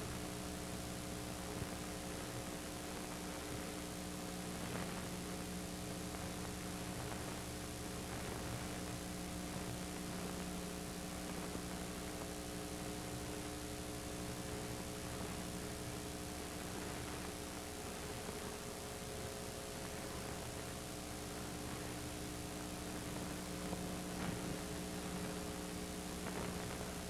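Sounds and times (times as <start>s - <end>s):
electrical hum with hiss: 0.0s - 27.0s.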